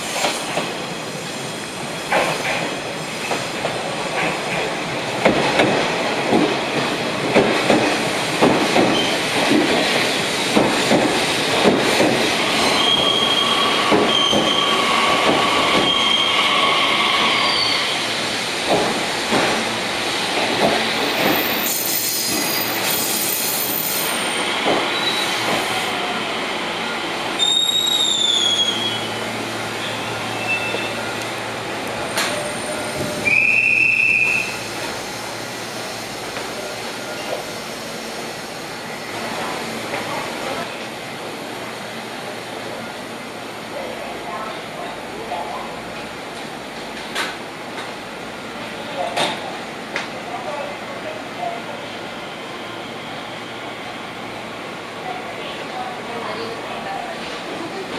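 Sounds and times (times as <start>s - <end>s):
train brakes squealing: 8.9s - 9.2s, 12.4s - 18.1s, 21.0s - 26.2s, 26.9s - 31.4s, 32.0s - 38.1s, 51.5s - 54.2s.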